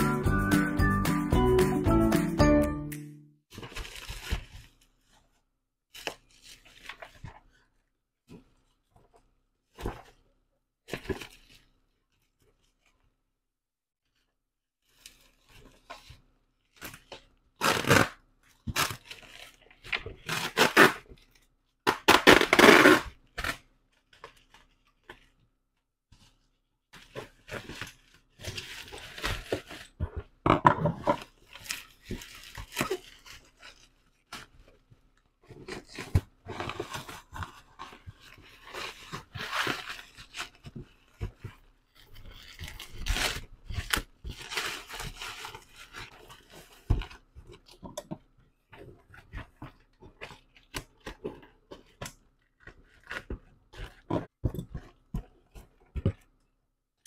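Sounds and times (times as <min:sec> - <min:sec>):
plastic mailer crinkling and tearing: 0:03.5 - 0:04.8, 0:16.8 - 0:25.1, 0:31.2 - 0:34.5, 0:35.6 - 0:47.8.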